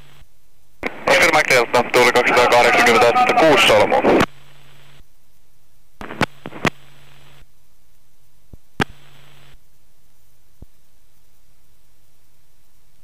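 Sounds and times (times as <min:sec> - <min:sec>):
low hum with bright hiss: 0:00.0 - 0:13.0
radio intercom hiss: 0:00.8 - 0:05.0.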